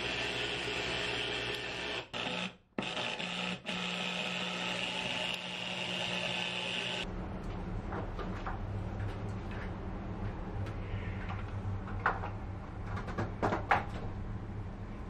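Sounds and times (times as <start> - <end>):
electric juicer motor running: 0.0 - 7.1.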